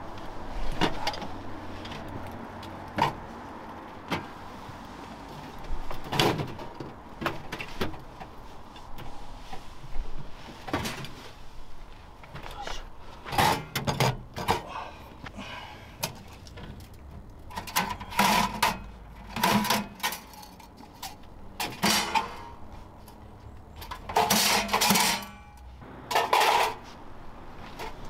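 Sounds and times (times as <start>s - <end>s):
metal stove parts clattering: 17.5s - 22.6s, 23.9s - 26.8s.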